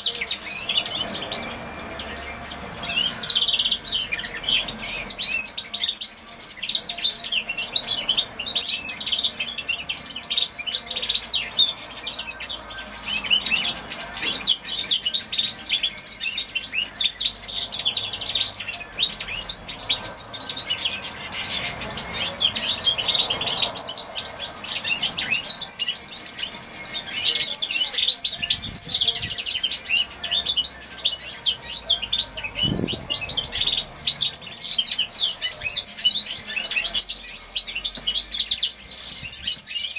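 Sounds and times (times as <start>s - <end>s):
finch twittering song: 0.0s - 39.9s.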